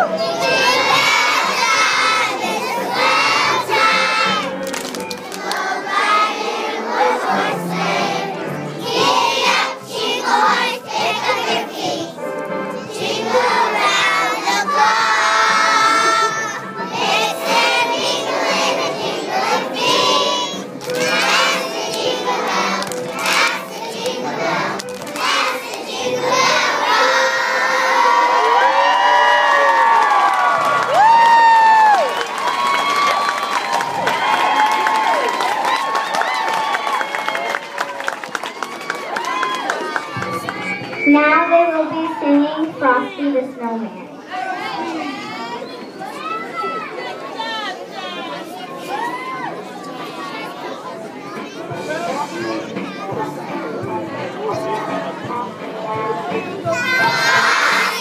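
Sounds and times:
children singing loudly: 0.0 - 4.6, 5.2 - 12.2, 12.8 - 28.5, 56.2 - 58.0
accompanying music: 0.0 - 44.0, 51.2 - 58.0.

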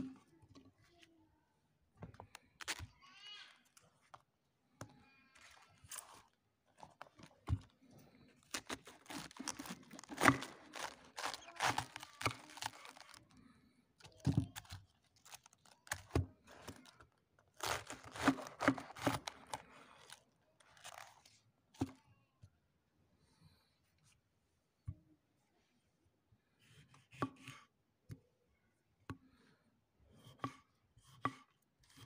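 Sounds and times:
cabbage leaf tearing: 2.6 - 2.9, 8.4 - 13.3, 14.1 - 16.9, 17.5 - 21.3
knife cutting through cabbage: 8.4 - 13.2, 17.6 - 20.2.

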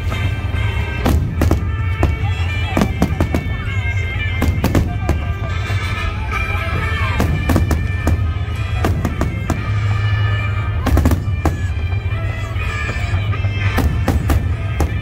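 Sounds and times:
music playing: 0.0 - 15.0
fireworks bangs and cracks: 1.0 - 2.2, 4.4 - 5.2, 7.2 - 9.8, 10.8 - 11.8, 13.8 - 15.0.

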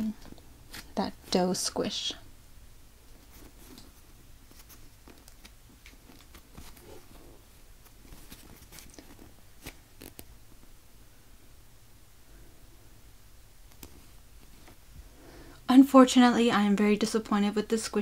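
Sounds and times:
faint rustling: 3.0 - 11.4, 13.6 - 15.6.

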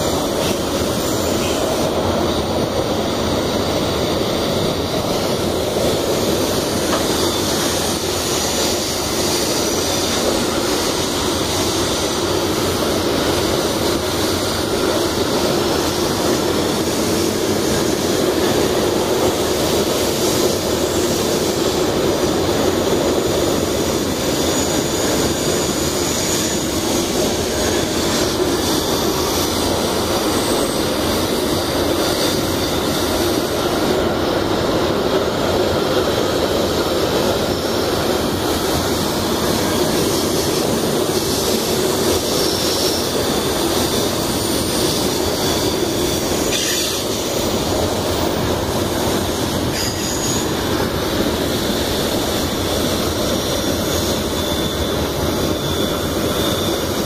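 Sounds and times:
freight train wheels rumbling: 0.0 - 57.0
wheels squealing: 39.4 - 48.2.

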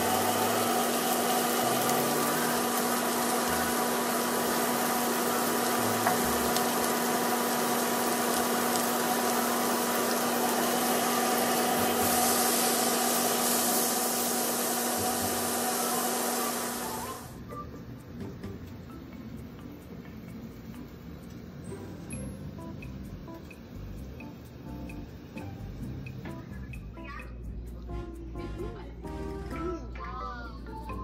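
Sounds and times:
steaks sizzling in frying pan: 0.0 - 17.3.

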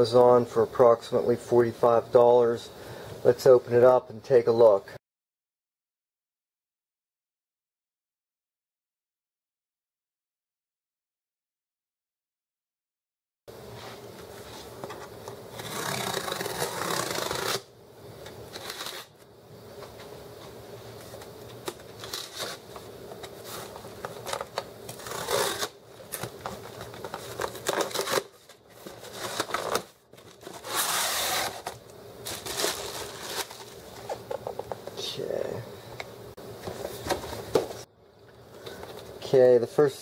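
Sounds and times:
cardboard scraping and rustling: 13.8 - 17.6, 18.5 - 19.1, 21.0 - 34.5
packing tape tearing: 15.5 - 17.7, 18.5 - 19.1, 21.2 - 34.2.

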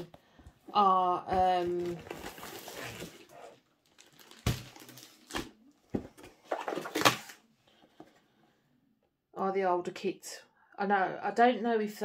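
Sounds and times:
plastic crinkling: 1.6 - 5.5.

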